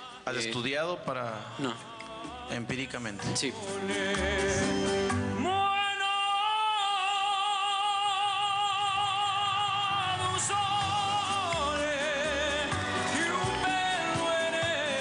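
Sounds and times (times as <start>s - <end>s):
man singing high note: 5.4s - 15.0s.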